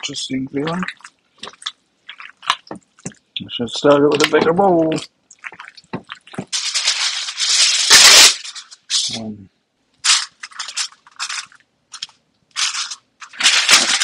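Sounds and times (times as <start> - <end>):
foil crinkling: 5.9 - 9.3, 10.0 - 14.0
aluminium foil tearing: 6.5 - 9.2, 10.0 - 14.0.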